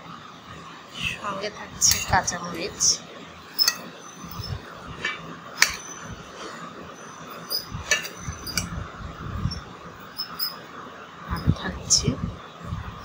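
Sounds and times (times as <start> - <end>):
metal spoon clinking on plate: 1.8 - 2.2, 3.6 - 6.0, 7.3 - 8.7, 10.1 - 10.6.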